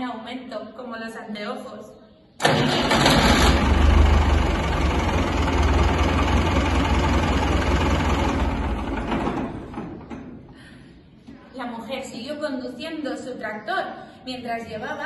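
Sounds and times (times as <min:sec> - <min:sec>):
tractor engine rumbling: 0:02.4 - 0:10.6.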